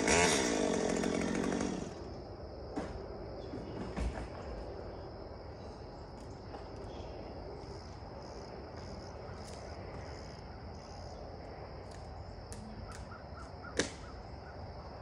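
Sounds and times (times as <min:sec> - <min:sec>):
high insect drone: 0:00.0 - 0:15.0
bird calling: 0:12.7 - 0:14.9
sharp snap: 0:13.8 - 0:14.1.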